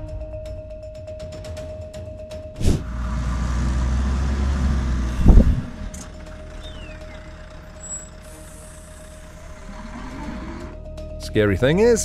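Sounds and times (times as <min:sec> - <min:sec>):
heavy truck rumble: 0:02.6 - 0:11.0.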